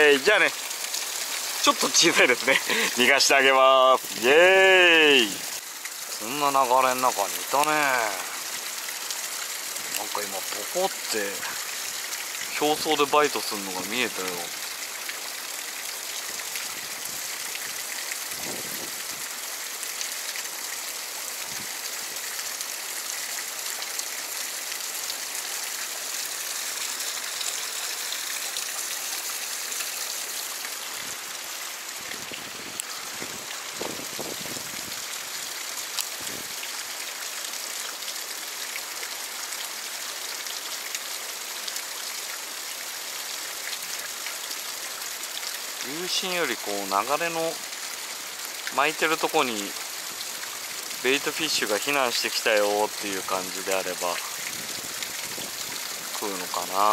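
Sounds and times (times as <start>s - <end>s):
stream rushing over rock: 0.0s - 56.9s.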